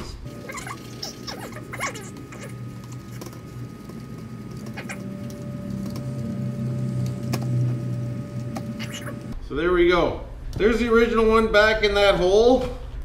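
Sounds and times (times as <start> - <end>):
low steady hum: 0.0 - 9.6.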